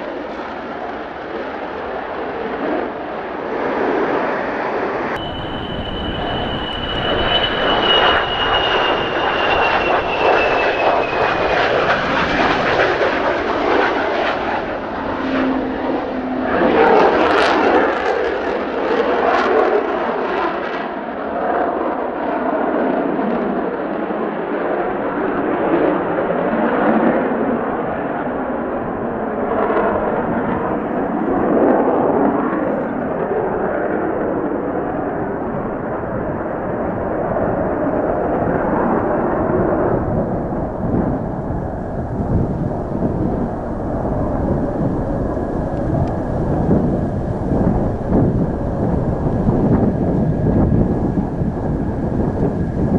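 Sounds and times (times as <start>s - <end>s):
high jet whine: 0.0s - 20.7s, 27.2s - 52.9s
jet engines passing at high power: 0.0s - 52.9s
jet engine crackling: 3.6s - 18.8s.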